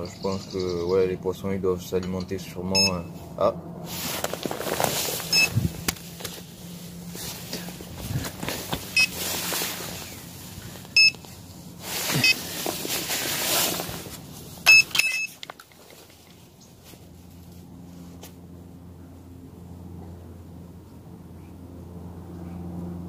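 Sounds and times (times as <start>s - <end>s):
bite alarm high beeps: 2.7s - 3.1s, 11.0s - 11.2s, 14.7s - 15.3s
rustling handling noise: 3.8s - 18.4s.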